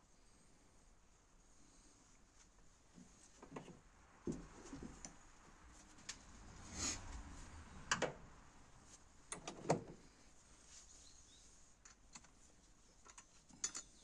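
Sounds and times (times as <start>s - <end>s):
short rustle: 10.0s - 13.5s.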